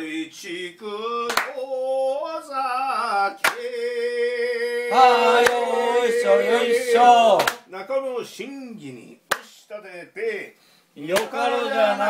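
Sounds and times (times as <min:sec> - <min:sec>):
hand clap: 0:01.3 - 0:01.6, 0:03.4 - 0:03.7, 0:05.4 - 0:05.6, 0:07.4 - 0:07.7, 0:09.3 - 0:09.5, 0:11.2 - 0:11.4.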